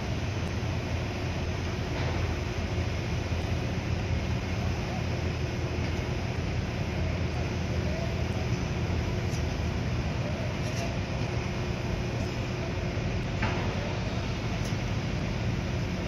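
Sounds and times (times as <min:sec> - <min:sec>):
construction machinery rumble: 0:00.0 - 0:16.0
faint constant hum: 0:00.0 - 0:16.0.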